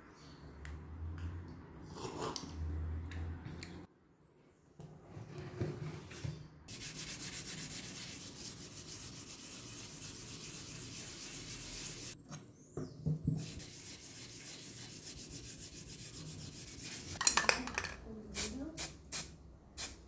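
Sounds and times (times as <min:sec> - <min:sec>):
hand sanding scratchy hiss: 0:06.7 - 0:12.2, 0:13.4 - 0:17.2.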